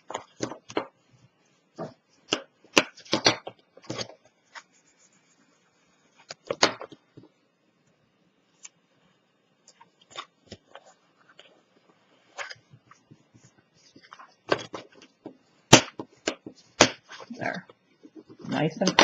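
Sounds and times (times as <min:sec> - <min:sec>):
cardstock crackling and tapping: 0:00.0 - 0:01.0, 0:01.8 - 0:04.7, 0:06.2 - 0:07.4, 0:12.4 - 0:19.0.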